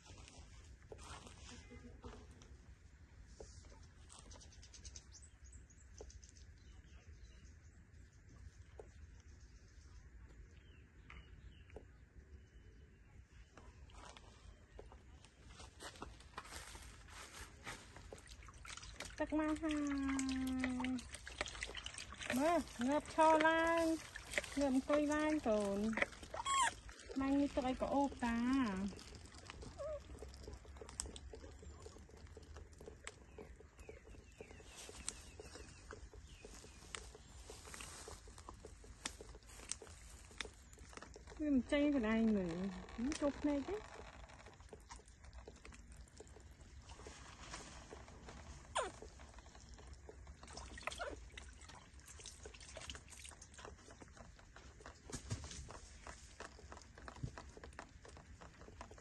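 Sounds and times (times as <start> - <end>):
water trickling in plastic basin: 0.0 - 59.0
small splashes and clicks: 13.4 - 59.0
baby monkeys squeaking: 26.3 - 26.8, 48.7 - 49.0.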